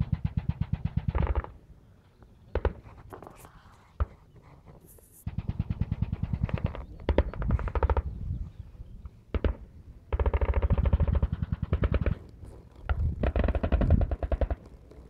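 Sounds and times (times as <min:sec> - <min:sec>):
machine gun firing bursts: 0:00.0 - 0:01.6, 0:05.3 - 0:08.0, 0:09.4 - 0:12.3, 0:13.2 - 0:14.6.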